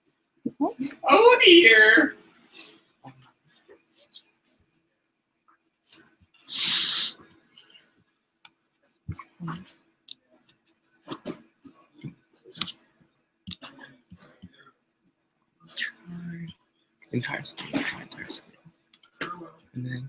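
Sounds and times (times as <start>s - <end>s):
short loud hiss: 6.5s - 7.2s.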